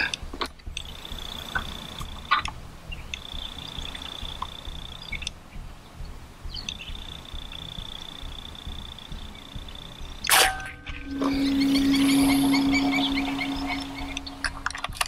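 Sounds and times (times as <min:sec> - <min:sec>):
low uneven rumble: 0:00.0 - 0:15.0
high-pitched insect trill: 0:06.7 - 0:15.0.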